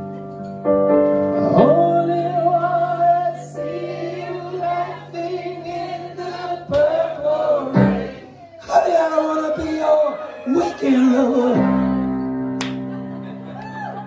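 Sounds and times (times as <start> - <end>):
electric keyboard chords: 0.0 - 8.2, 11.6 - 14.0
man singing in a high voice: 1.4 - 3.6, 8.6 - 12.0.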